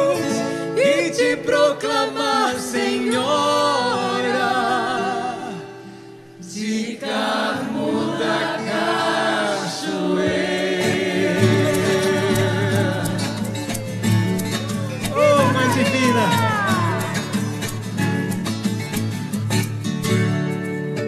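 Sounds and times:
choir singing a hymn: 0.2s - 13.7s.

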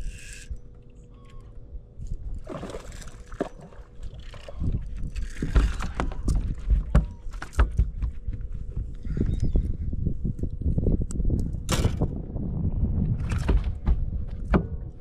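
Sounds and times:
fish thrashing: 2.4s - 6.2s.

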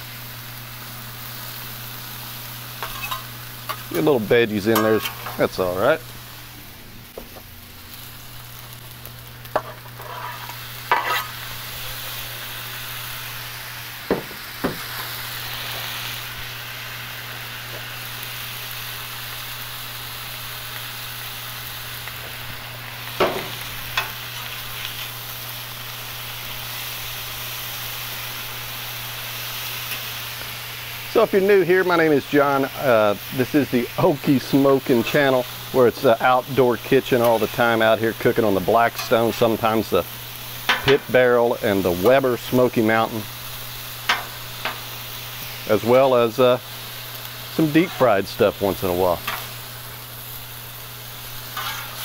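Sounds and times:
steak sizzling on a griddle: 0.0s - 52.0s
metal spatulas clinking and scraping: 2.8s - 3.9s, 4.8s - 5.4s, 9.6s - 11.3s, 51.6s - 52.0s.

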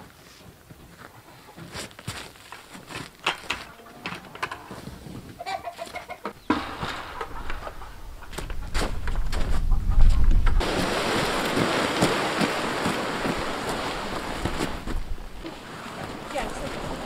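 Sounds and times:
chickens clucking: 1.1s - 1.8s, 3.6s - 10.6s.

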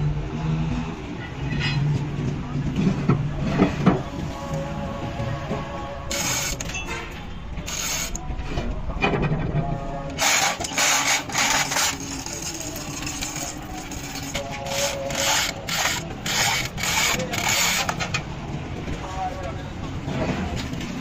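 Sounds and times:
metal scraping and clanking: 5.5s - 18.3s.

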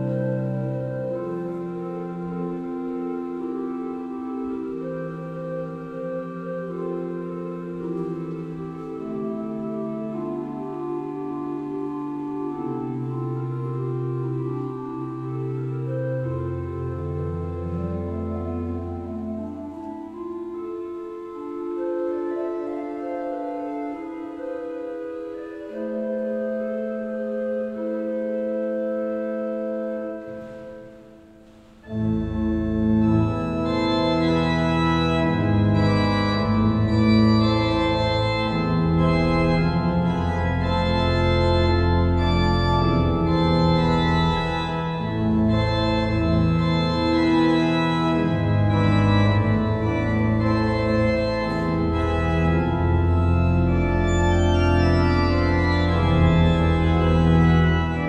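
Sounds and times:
pipe organ playing chords: 0.0s - 58.0s
deep pedal bass notes: 31.9s - 58.0s.

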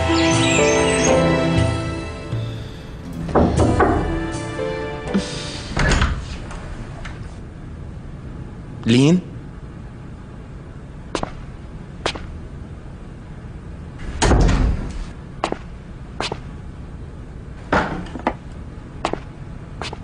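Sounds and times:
heavy thuds on a door: 3.2s - 4.2s
knocks on a door: 3.3s - 4.1s.

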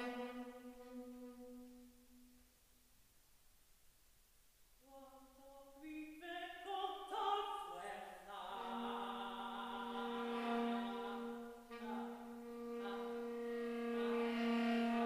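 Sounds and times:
saxophone: 0.0s - 2.3s, 8.3s - 15.0s.

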